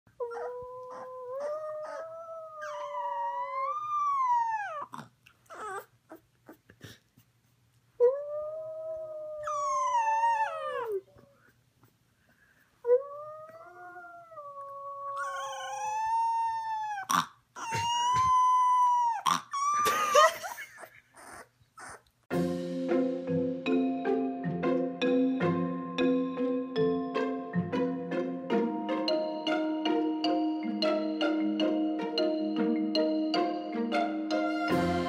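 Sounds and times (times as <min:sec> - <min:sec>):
puppy howling: 0:00.2 - 0:05.9, 0:08.0 - 0:11.2, 0:12.9 - 0:19.9.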